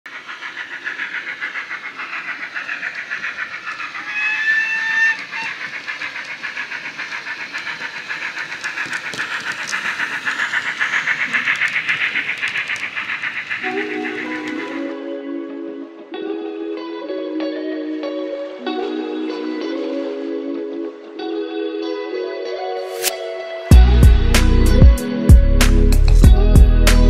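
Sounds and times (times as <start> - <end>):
steam exhaust chuffs: 0.1 - 15.1, 23.0 - 27.0
steam whistle: 4.0 - 5.9
sharp clicks: 5.2 - 14.8.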